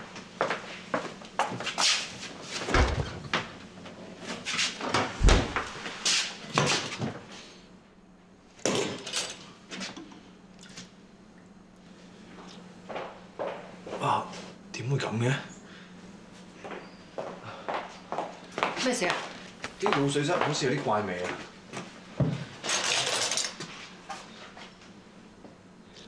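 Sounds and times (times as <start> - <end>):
heavy thuds: 5.2 - 5.8.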